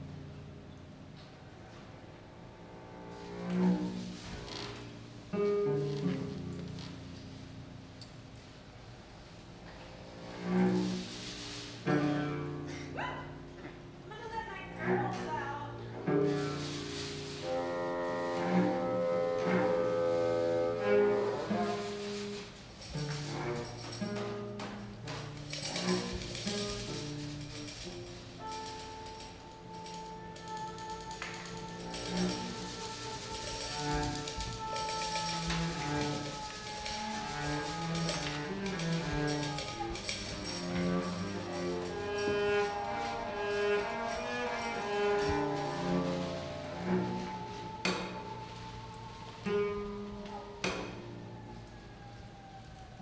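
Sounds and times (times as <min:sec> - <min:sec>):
cello bowing long notes: 0:00.0 - 0:53.0
objects clicking and knocking: 0:21.6 - 0:51.1
sustained ensemble tones: 0:27.9 - 0:51.3.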